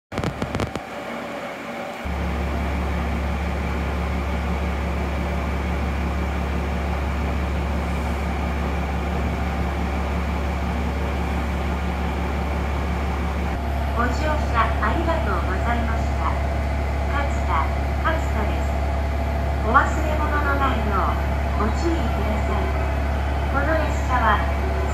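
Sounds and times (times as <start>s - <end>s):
clicks: 0.2s - 0.8s
diesel engine idling: 1.0s - 24.9s.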